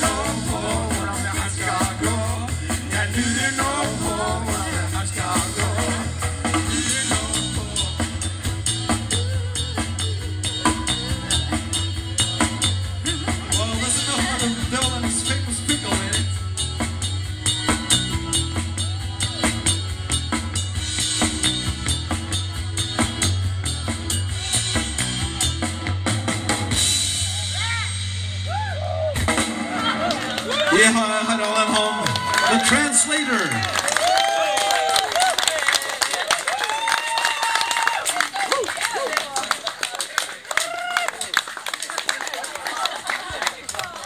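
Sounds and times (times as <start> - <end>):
drum kit beat: 0.0 - 33.4
bass line: 0.0 - 34.5
keyboards: 0.0 - 36.5.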